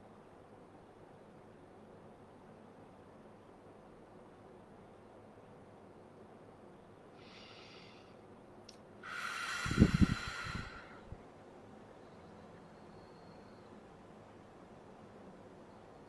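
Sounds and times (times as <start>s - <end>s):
person breathing into microphone: 7.2s - 8.2s, 9.0s - 11.2s.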